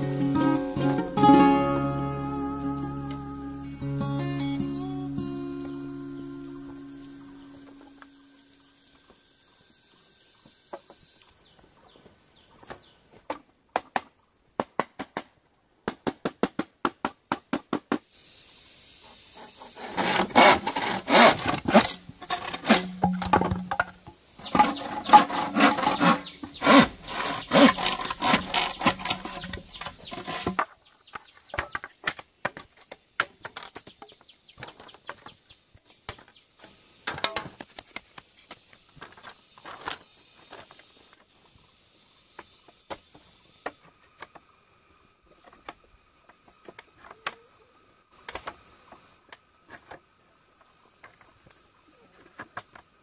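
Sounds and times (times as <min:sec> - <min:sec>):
sharp knocks on bamboo: 0:13.3 - 0:18.0
saw rasping through bamboo: 0:19.4 - 0:22.9, 0:24.4 - 0:30.6.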